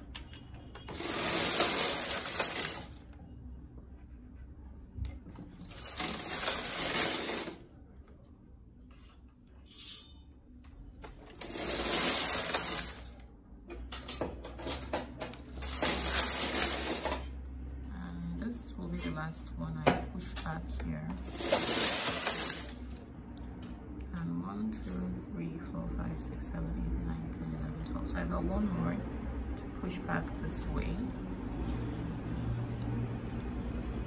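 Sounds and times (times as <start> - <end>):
knitting machine carriage rattling: 0.8 - 3.1, 5.3 - 7.6, 11.0 - 17.4, 21.2 - 23.0.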